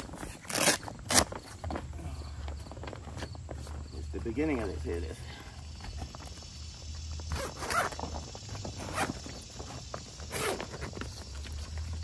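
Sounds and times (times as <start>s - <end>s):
stiff fabric rustling and crinkling: 0.0s - 4.2s, 7.3s - 12.0s.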